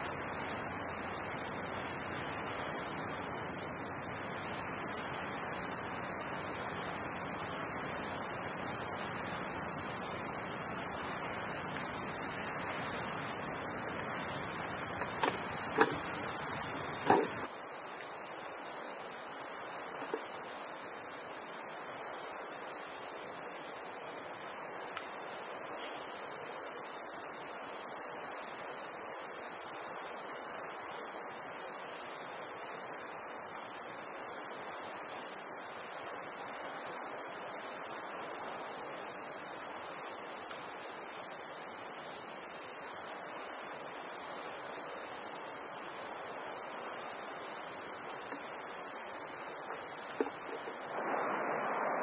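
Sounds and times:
insects chirring: 0.0s - 52.0s.

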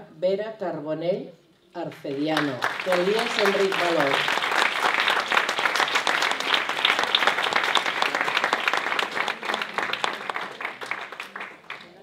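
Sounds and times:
audience applause: 2.4s - 12.0s.

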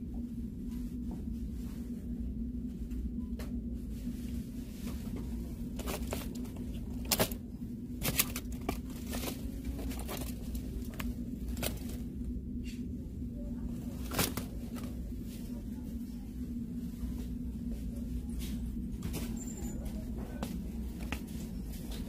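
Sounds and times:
steady low hum: 0.0s - 22.0s
plastic pouches crinkling: 5.7s - 12.1s
sharp plastic crackles: 5.7s - 12.1s, 14.0s - 15.0s.

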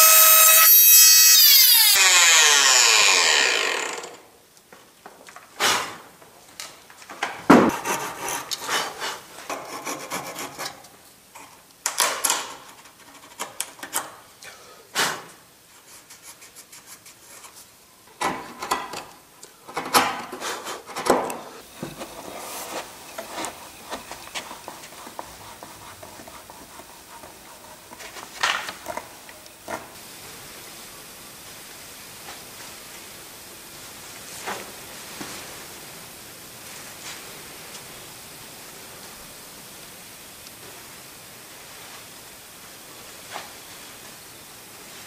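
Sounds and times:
knock on wood: 7.5s - 7.8s.

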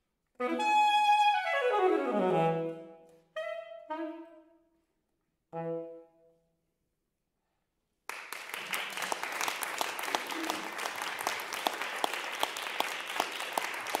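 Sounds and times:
audience applauding: 8.1s - 14.0s.

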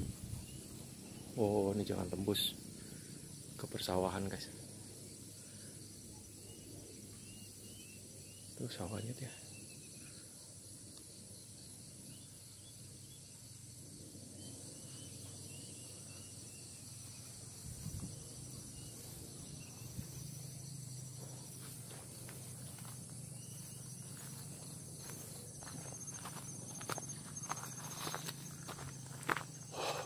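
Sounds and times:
insects chirring: 0.0s - 30.0s
footsteps crunching on stones: 21.1s - 29.6s.

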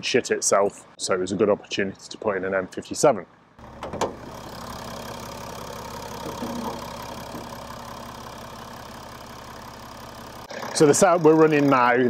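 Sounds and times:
diesel engine idling: 3.4s - 12.0s.

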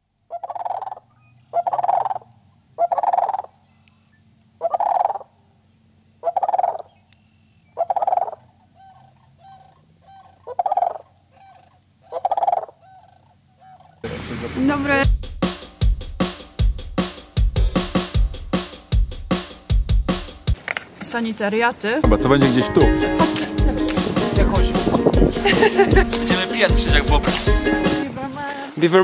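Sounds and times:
fowl calling: 0.3s - 5.3s, 6.2s - 7.0s, 7.8s - 14.1s, 22.2s - 28.2s.

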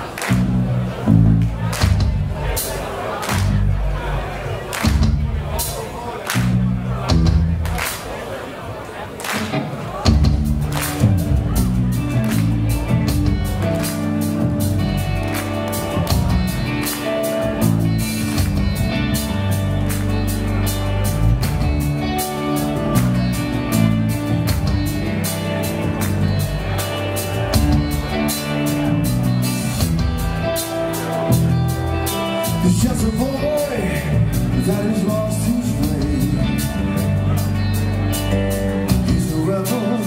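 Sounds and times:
rock band playing live: 0.0s - 8.1s, 9.2s - 40.0s
person singing: 32.4s - 37.4s, 38.9s - 40.0s.

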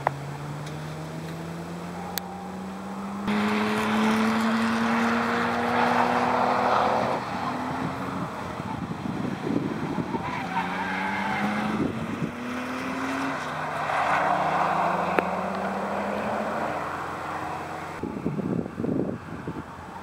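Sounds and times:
car engine: 0.0s - 20.0s
tires squealing: 0.4s - 18.3s
wind buffeting microphone: 7.0s - 10.5s, 11.2s - 13.1s, 17.9s - 20.0s.

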